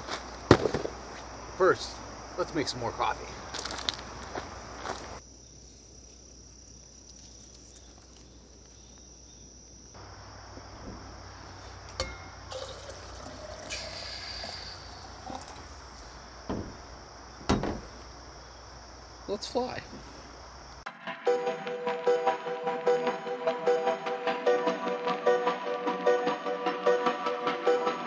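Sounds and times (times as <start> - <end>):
insects buzzing: 0.0 - 20.9
coffee pouring: 11.8 - 16.3.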